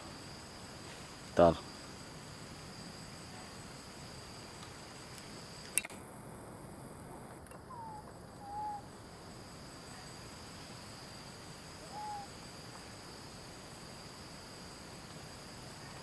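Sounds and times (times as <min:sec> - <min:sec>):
crickets droning: 0:00.0 - 0:16.0
monkey coo calls: 0:07.7 - 0:08.9, 0:11.8 - 0:12.3.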